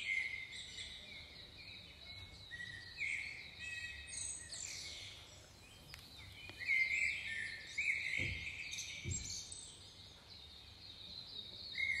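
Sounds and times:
birds chirping: 0.0 - 12.0
faint clicks: 5.8 - 6.6.

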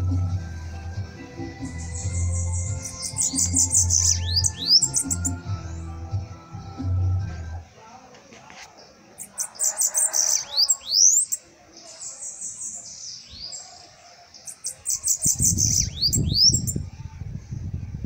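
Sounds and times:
bird twittering: 1.7 - 5.4, 9.2 - 11.4, 14.4 - 16.8.

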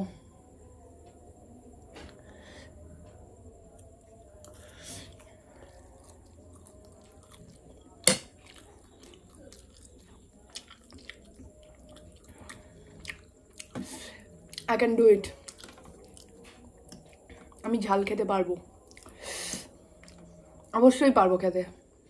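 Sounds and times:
person chewing noodles: 3.7 - 14.7, 15.3 - 17.7, 18.7 - 20.4
breathy hiss: 19.1 - 19.9.

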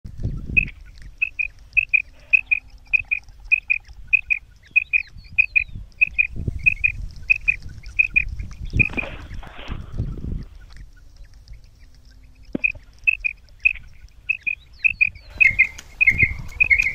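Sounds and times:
quail two-note calls: 0.4 - 9.0, 12.5 - 16.9.

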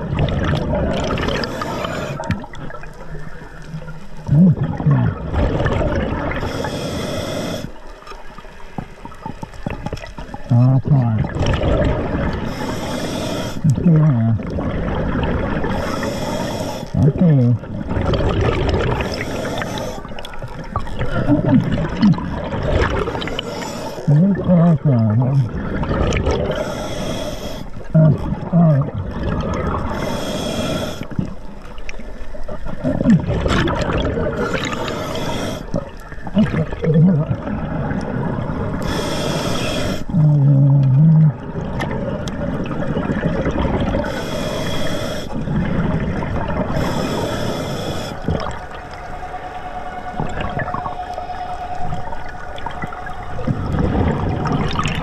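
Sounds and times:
low wavering gurgling tones: 0.0 - 6.6, 7.6 - 30.1, 30.8 - 55.0
diver exhaling bubbles underwater: 4.2 - 6.6, 9.6 - 31.4, 32.6 - 48.9, 51.8 - 55.0.

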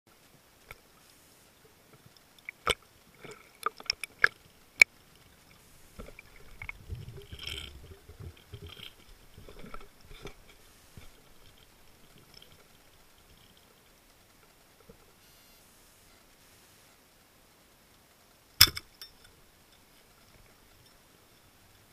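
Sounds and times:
low rumbling swish of water: 5.2 - 13.4
underwater clicks and knocks: 6.0 - 13.6.

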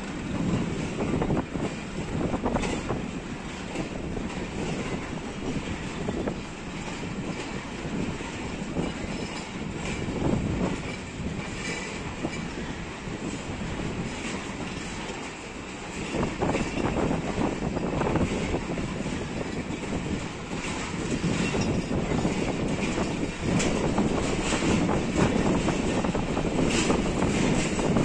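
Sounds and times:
train wheels clacking over rail joints: 0.0 - 28.0.

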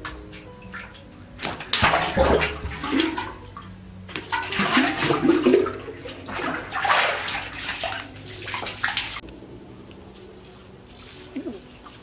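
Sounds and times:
water sloshing in a well: 0.0 - 9.2.

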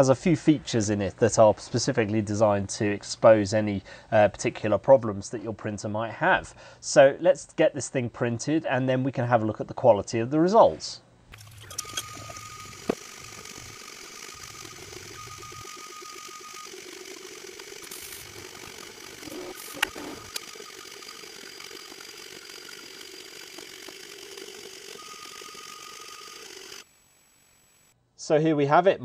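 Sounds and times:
pitched whine: 11.3 - 28.0
stepper motors whirring: 11.3 - 28.0
sharp click: 19.6 - 20.5.

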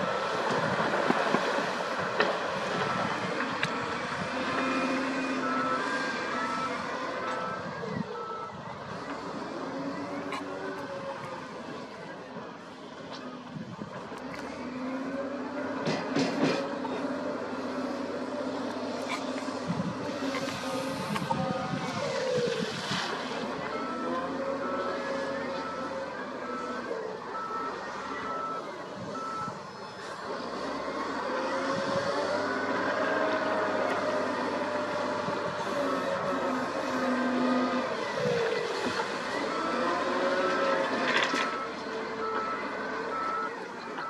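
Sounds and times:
diesel engine under load: 0.0 - 44.0
reversing alarm beeping: 2.7 - 10.5, 23.6 - 30.0, 34.4 - 44.0.

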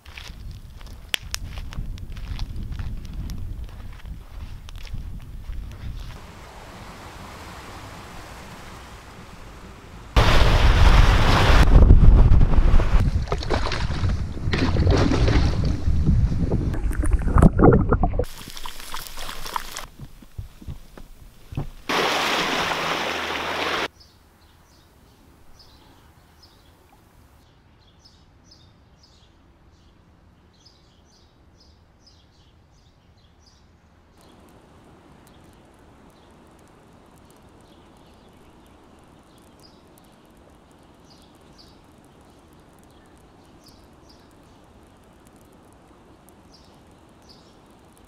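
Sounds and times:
loud rushing noise: 6.2 - 13.0
small birds chirping: 23.9 - 48.0.

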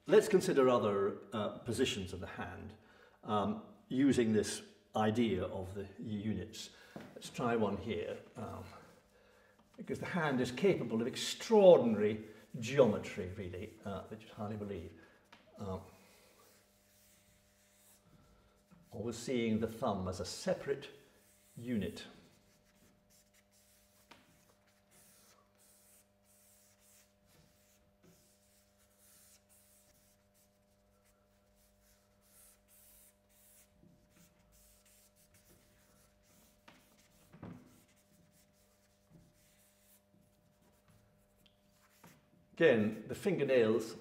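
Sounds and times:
charcoal scratching on paper: 15.3 - 19.0, 21.2 - 42.2.

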